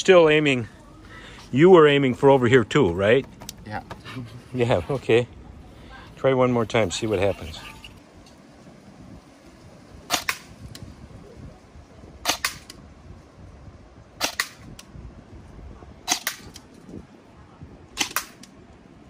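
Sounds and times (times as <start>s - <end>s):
airsoft gun single shots: 10.1s - 10.5s, 12.2s - 12.8s, 14.2s - 14.8s, 16.0s - 16.6s, 18.0s - 18.5s.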